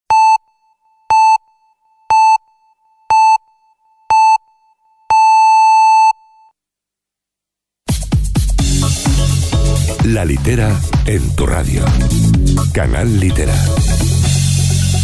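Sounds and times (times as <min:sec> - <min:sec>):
electronic countdown beeps: 0:00.1 - 0:06.5.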